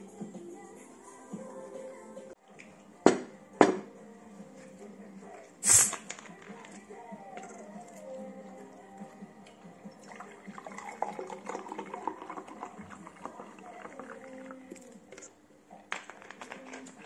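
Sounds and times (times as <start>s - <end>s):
drink pouring into glass: 9.9s - 15.4s.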